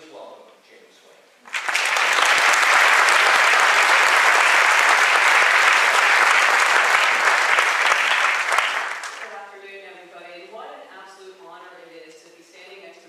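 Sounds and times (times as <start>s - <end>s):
audience applauding: 1.5s - 9.3s.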